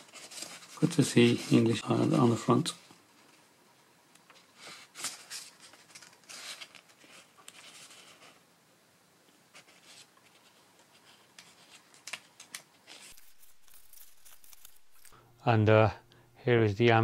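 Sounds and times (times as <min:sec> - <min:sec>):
paper pages rustling and flicking: 0:00.0 - 0:01.8, 0:04.6 - 0:08.4, 0:09.6 - 0:15.2.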